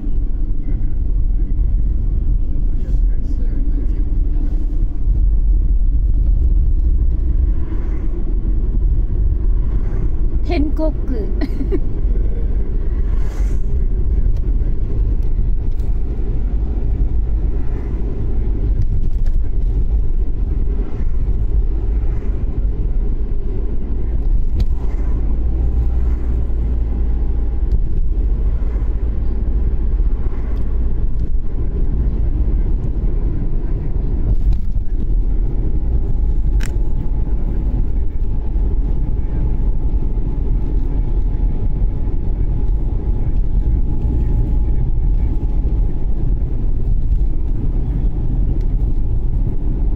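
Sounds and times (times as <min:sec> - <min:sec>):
car engine and tyre rumble: 0:00.0 - 0:49.9.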